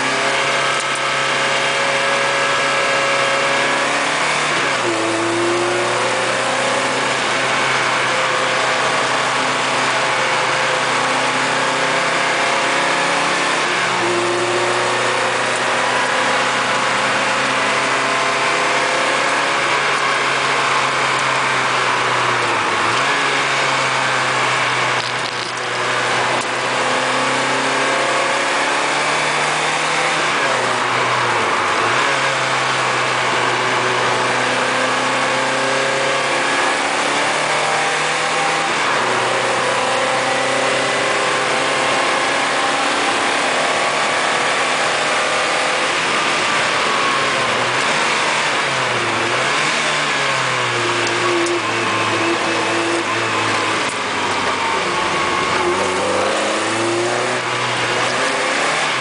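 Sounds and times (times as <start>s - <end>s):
car engine revving: 0.0s - 59.0s.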